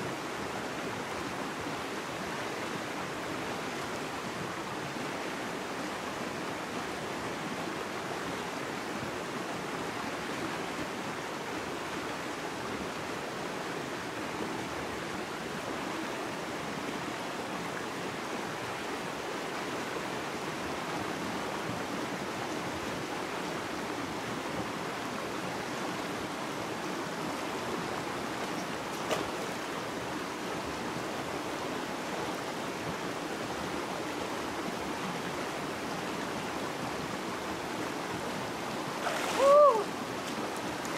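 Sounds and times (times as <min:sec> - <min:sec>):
shallow river water running: 0:00.0 - 0:40.9.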